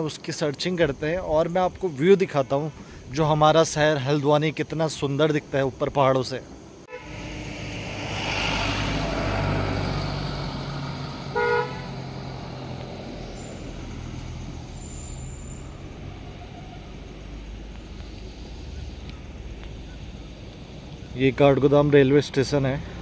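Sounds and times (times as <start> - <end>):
horn honk: 6.9 - 9.6, 11.3 - 12.0
vehicle passing: 6.9 - 14.9
low engine rumble: 6.9 - 23.0.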